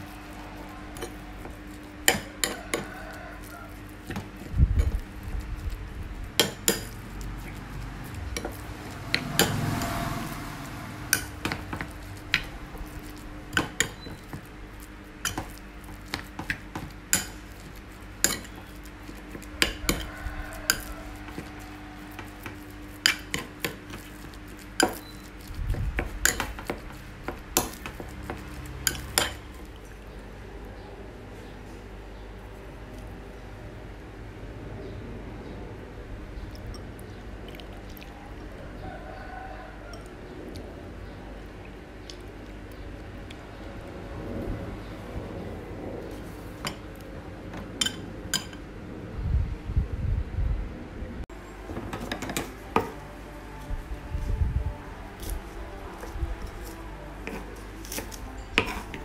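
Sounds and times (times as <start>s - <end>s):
metal spoon clinking against bowl: 6.4s - 7.6s, 11.1s - 14.4s, 15.2s - 21.6s, 23.0s - 29.8s, 47.5s - 48.6s, 56.0s - 59.0s.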